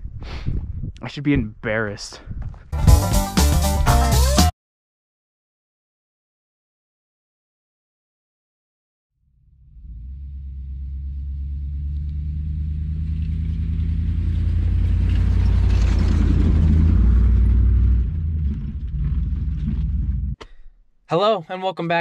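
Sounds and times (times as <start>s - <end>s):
car engine running: 9.4s - 20.7s.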